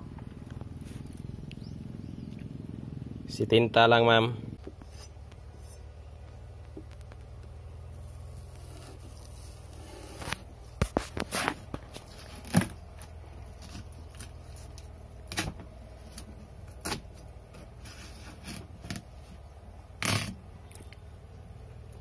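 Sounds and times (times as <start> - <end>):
knife cutting watermelon: 8.4 - 19.2.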